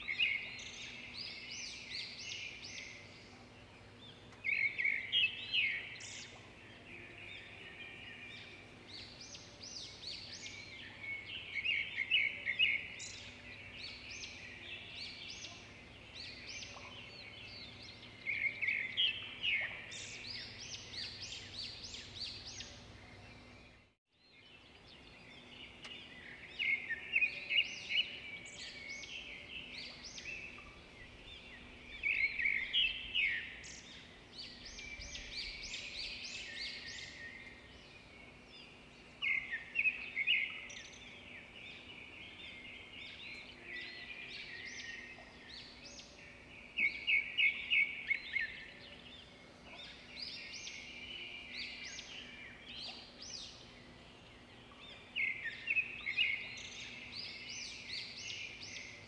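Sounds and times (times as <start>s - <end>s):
small birds chirping: 0.0s - 59.0s
faint steady hum: 24.5s - 59.0s.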